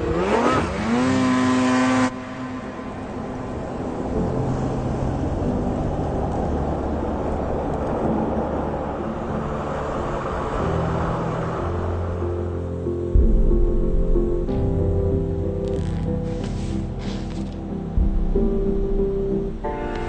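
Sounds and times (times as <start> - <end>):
snowmobile engine revving: 0.0 - 2.2
low droning rumble: 2.2 - 20.0.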